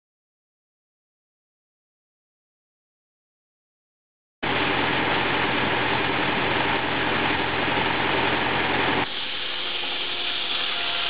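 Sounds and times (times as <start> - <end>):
saw blade cutting log: 9.0 - 11.0.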